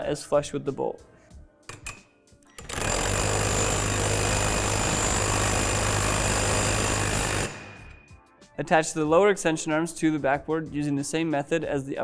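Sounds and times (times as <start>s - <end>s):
cordless drill motor running: 2.6s - 7.6s.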